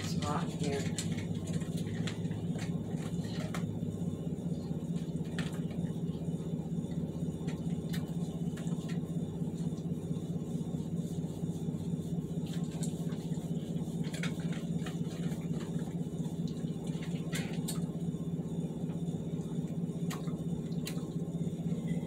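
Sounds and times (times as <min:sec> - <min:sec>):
dog eating kibble from metal bowl: 0:00.0 - 0:03.8, 0:04.7 - 0:05.9, 0:13.7 - 0:16.0
steady low hum: 0:00.0 - 0:22.0.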